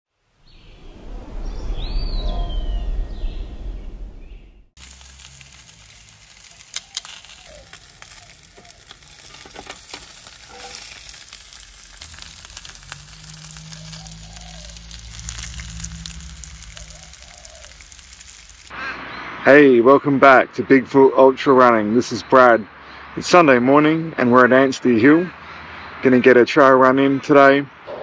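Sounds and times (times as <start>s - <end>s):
low hum: 0.3s - 8.6s, 11.3s - 18.7s
sausages sizzling on hot plate: 4.8s - 18.7s.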